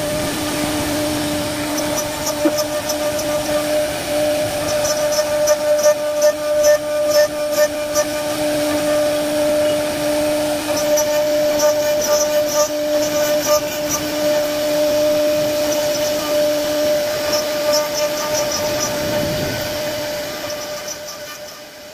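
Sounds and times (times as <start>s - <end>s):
lower machine hum: 0.0s - 21.9s
router spindle whine: 0.0s - 21.9s.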